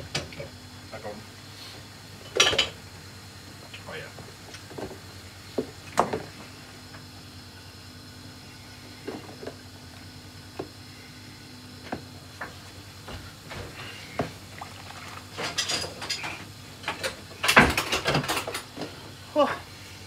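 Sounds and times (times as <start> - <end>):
dishes knocking and clinking: 2.3 - 2.8.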